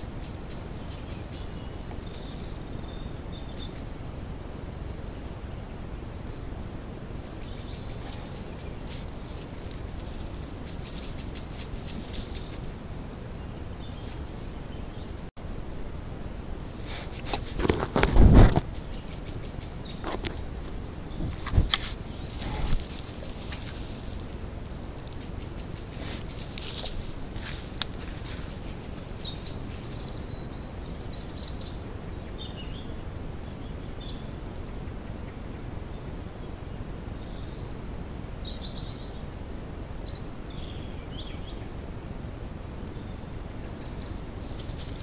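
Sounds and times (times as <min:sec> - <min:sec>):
high insect chirping: 0:06.5 - 0:14.7, 0:18.7 - 0:32.3.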